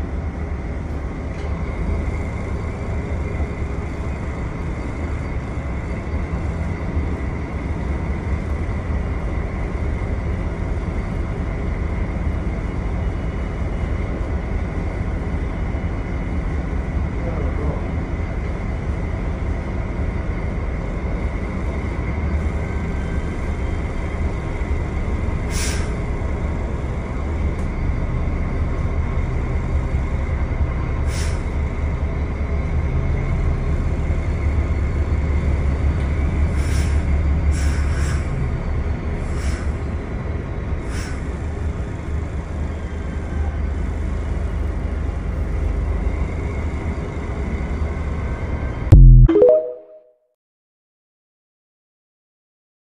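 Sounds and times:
short hisses: 25.5s - 25.9s.

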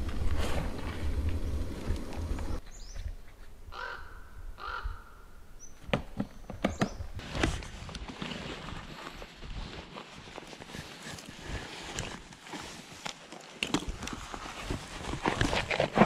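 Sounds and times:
bird cawing: 3.7s - 5.3s.

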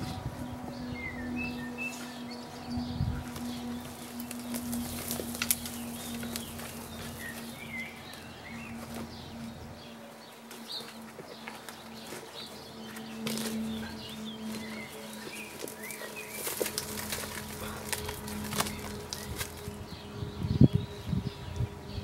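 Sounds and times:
small birds chirping: 0.0s - 22.0s
steady low hum: 0.0s - 22.0s
weeds snapping as pulled: 3.3s - 8.2s, 12.9s - 19.8s.

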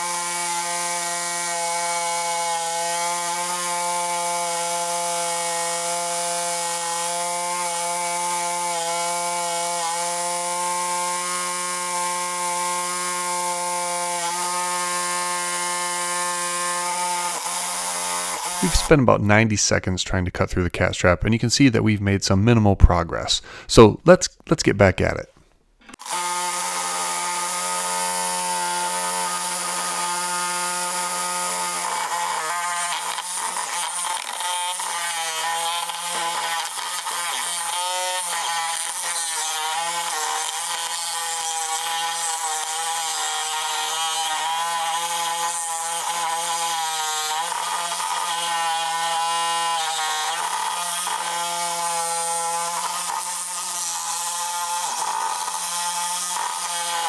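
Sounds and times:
reciprocating saw cutting steel: 0.0s - 19.0s, 25.8s - 57.0s.

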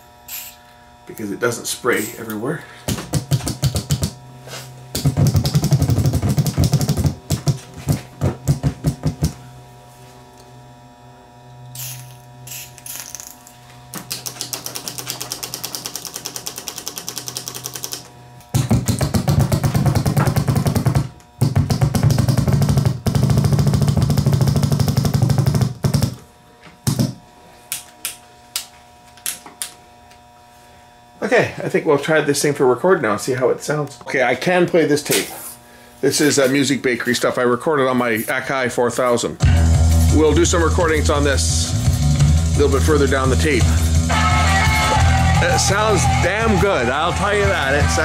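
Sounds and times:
aerosol spray hisses: 0.3s - 0.6s
switches clicking and rattling: 13.9s - 19.0s.

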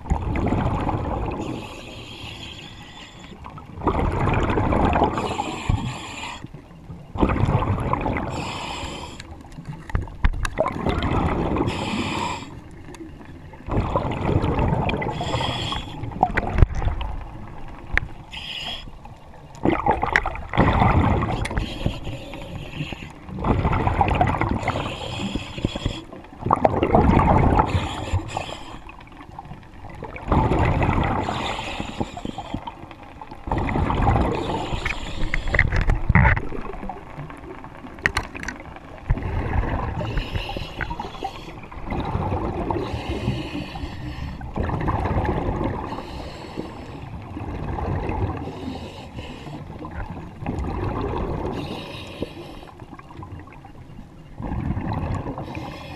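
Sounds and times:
diver exhaling bubbles underwater: 0.1s - 1.6s, 3.7s - 5.9s, 7.2s - 8.6s, 10.5s - 12.5s, 13.6s - 17.2s, 19.6s - 21.9s, 23.3s - 28.2s, 30.0s - 31.6s, 33.5s - 37.0s, 38.1s - 43.5s, 44.5s - 46.0s, 49.8s - 51.9s
regulator inhale hiss: 1.4s - 3.5s, 5.2s - 6.6s, 8.3s - 9.4s, 11.7s - 12.7s, 15.1s - 16.2s, 18.2s - 19.0s, 21.3s - 23.2s, 24.6s - 26.2s, 27.7s - 28.9s, 31.2s - 32.7s, 34.4s - 35.7s, 40.0s - 41.7s, 42.8s - 44.5s, 45.9s - 47.2s, 48.4s - 49.8s, 51.5s - 52.8s, 55.4s - 55.9s.

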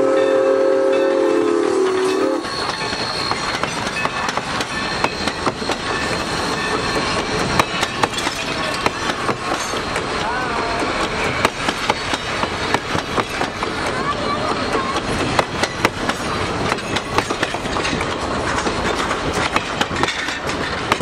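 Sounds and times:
steam whistle chime chord: 0.0s - 3.4s
train wheels clicking over rail joints: 1.4s - 21.0s.

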